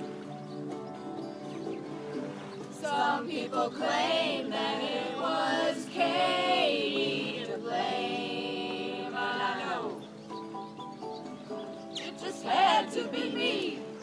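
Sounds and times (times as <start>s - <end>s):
group of voices singing: 2.7s - 10.2s, 12.0s - 14.0s.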